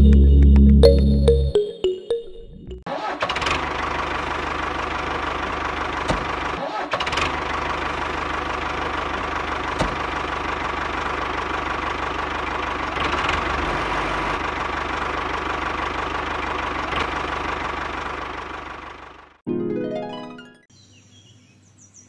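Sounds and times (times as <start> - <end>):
tractor engine knocking: 3.3 - 13.7, 14.4 - 19.4.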